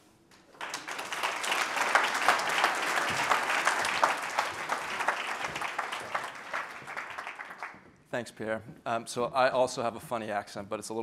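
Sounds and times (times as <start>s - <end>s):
audience applauding: 0.6s - 7.8s.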